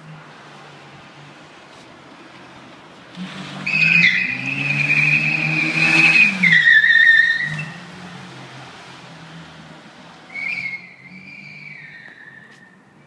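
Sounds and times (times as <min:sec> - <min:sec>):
car engine revving: 0:02.4 - 0:12.0
tyres squealing: 0:03.6 - 0:07.8, 0:10.3 - 0:12.8.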